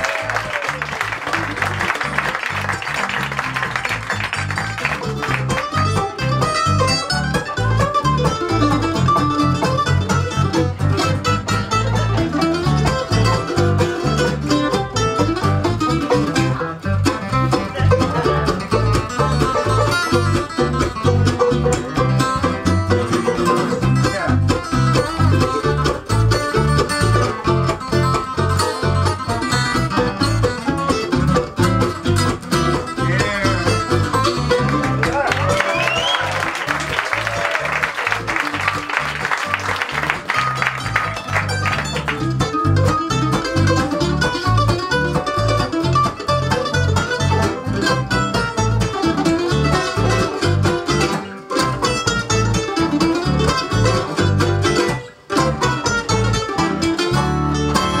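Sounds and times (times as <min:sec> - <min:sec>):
audience applause: 0:00.0 - 0:05.8, 0:34.6 - 0:42.4
acoustic guitar: 0:00.0 - 0:58.0
banjo: 0:00.0 - 0:58.0
bass guitar: 0:00.0 - 0:58.0
live bluegrass band playing: 0:00.0 - 0:58.0
mandolin: 0:00.0 - 0:58.0.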